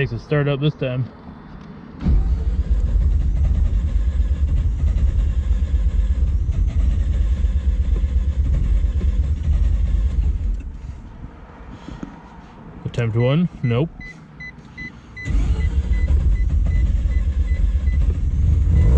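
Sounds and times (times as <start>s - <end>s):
engine cranking on starter: 2.0s - 10.9s, 15.2s - 18.9s.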